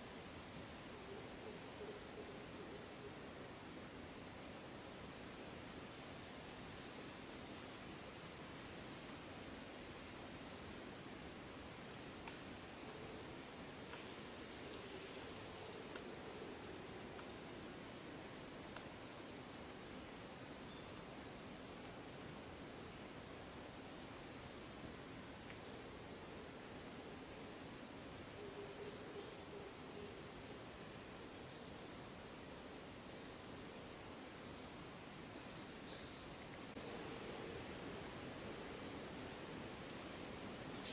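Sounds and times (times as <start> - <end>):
insect chorus drone: 0.0 - 40.9.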